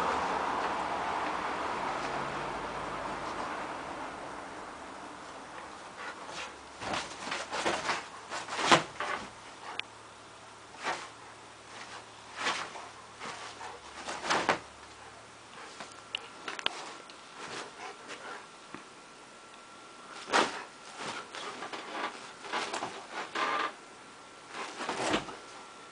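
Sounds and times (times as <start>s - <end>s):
dog rustling bedding: 4.8s - 9.8s, 10.6s - 18.6s, 20.0s - 23.7s, 24.4s - 25.9s.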